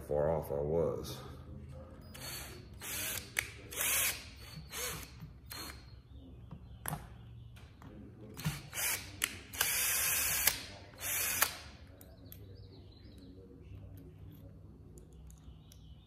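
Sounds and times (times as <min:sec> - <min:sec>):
cordless drill driving screw: 0:02.2 - 0:05.8, 0:08.4 - 0:11.6.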